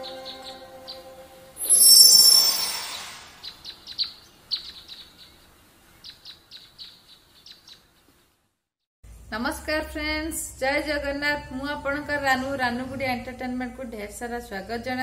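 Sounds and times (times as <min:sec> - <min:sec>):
whoosh with high ringing tones: 0:00.0 - 0:03.6
high bird chirps: 0:00.0 - 0:05.4.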